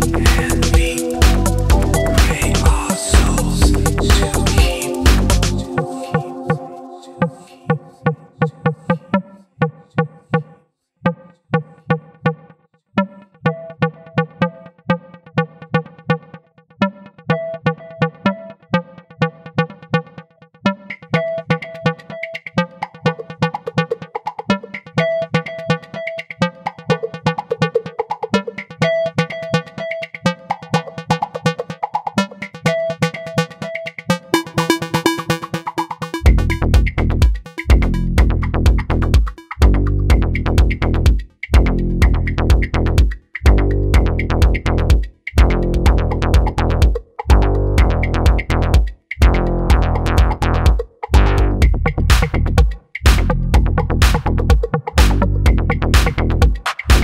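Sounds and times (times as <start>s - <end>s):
steady kick drum beat: 0.0s - 5.7s, 21.1s - 57.0s
heavy bass line: 0.0s - 5.8s, 36.2s - 57.0s
synth notes: 0.0s - 9.2s, 32.2s - 40.8s
electronic dance music: 0.0s - 9.4s, 17.0s - 57.0s.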